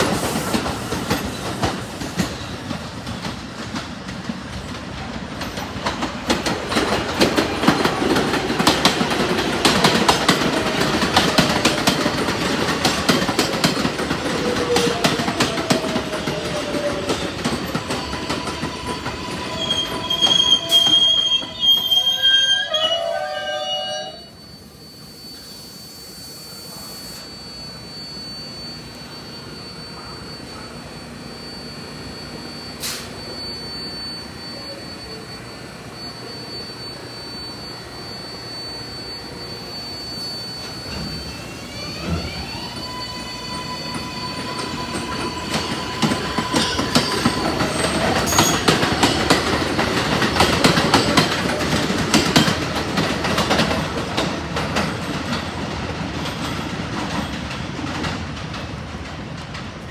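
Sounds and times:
train propulsion whine: 0.0 - 59.9
wheel squeal: 6.7 - 54.3.

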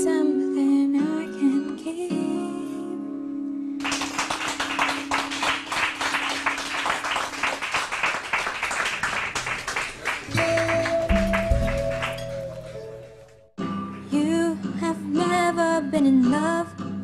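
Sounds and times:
music: 0.0 - 17.0
hands clapping in applause: 3.8 - 13.4
held low musical note: 10.3 - 13.5.

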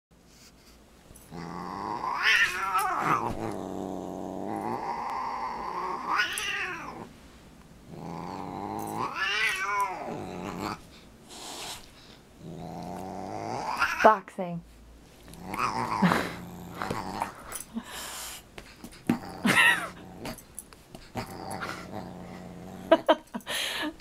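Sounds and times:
cat growling and yowling: 1.3 - 7.1, 7.9 - 10.8, 12.4 - 14.1, 15.4 - 17.4.

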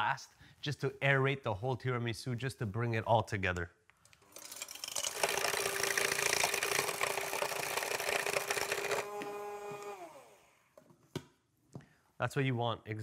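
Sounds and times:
hand mixer whirring: 4.3 - 10.6
motor winding down: 4.4 - 10.6.

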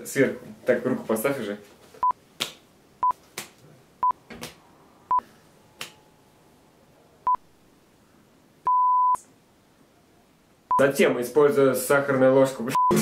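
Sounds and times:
electronic beep tones: 8.7 - 9.2, 12.8 - 13.0.

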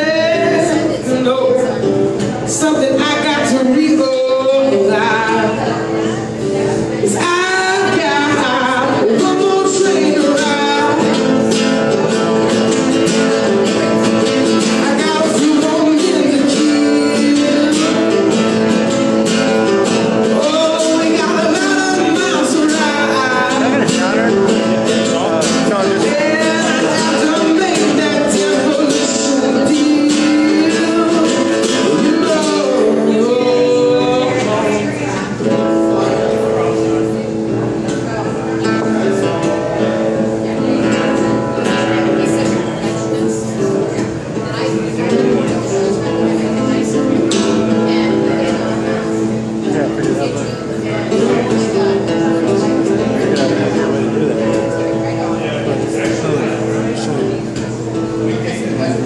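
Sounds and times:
man singing: 0.0 - 6.2, 6.9 - 35.7
acoustic guitar: 0.0 - 59.0.

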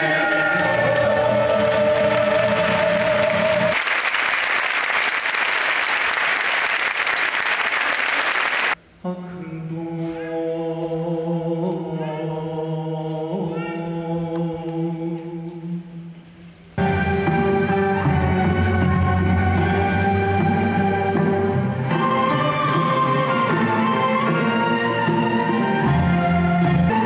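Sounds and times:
audience applause: 0.0 - 8.8
man chanting: 9.0 - 15.9.

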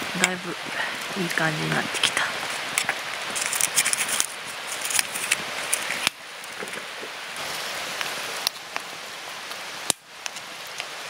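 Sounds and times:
steady hissing with crackles: 0.0 - 11.0
foil wrapper crinkling: 1.8 - 6.9.

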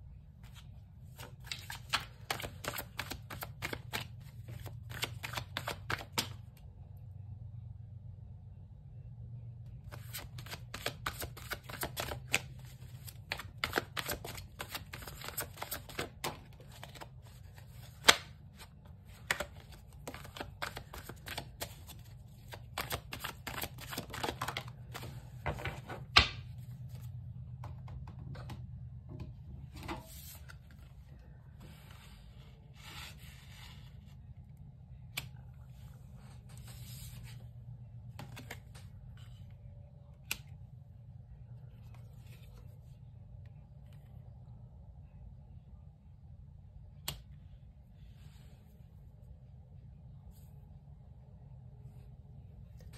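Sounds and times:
cards being shuffled: 0.4 - 6.5, 9.9 - 27.1, 38.2 - 39.0.

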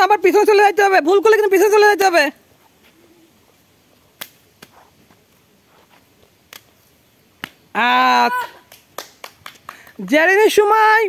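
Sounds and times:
person calling out: 7.8 - 8.6.

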